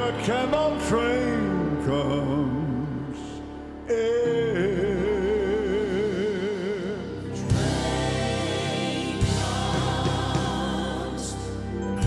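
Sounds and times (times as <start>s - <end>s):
man singing with vibrato: 0.0s - 7.7s
piano and band playing: 0.0s - 12.0s
backing vocalists singing: 3.9s - 12.0s.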